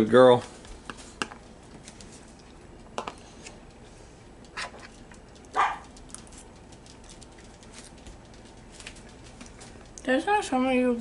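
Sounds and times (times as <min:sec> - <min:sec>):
dog barking: 0:05.5 - 0:05.9.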